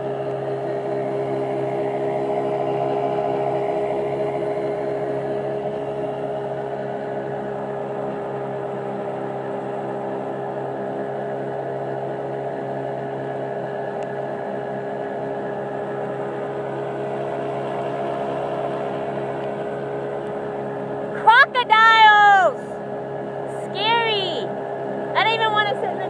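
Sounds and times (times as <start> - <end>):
boat engine droning: 0.0 - 26.0.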